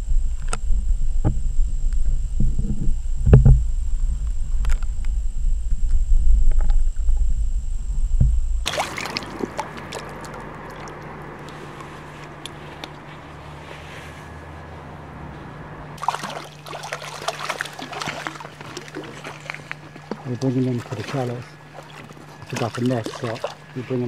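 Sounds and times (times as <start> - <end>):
low rumble: 0.0 - 16.0
underwater ticks and knocks: 0.1 - 13.0
fish splashing: 8.4 - 15.2, 15.8 - 24.0.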